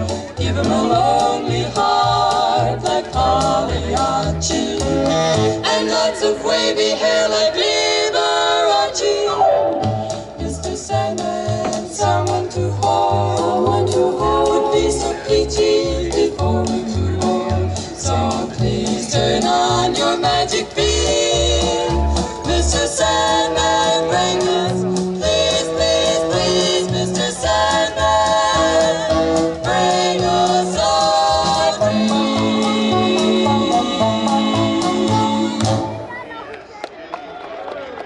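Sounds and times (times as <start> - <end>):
bass line: 0.0 - 6.0, 9.3 - 36.1
swing accompaniment: 0.0 - 36.1
women singing close harmony: 0.3 - 17.4, 18.0 - 35.9.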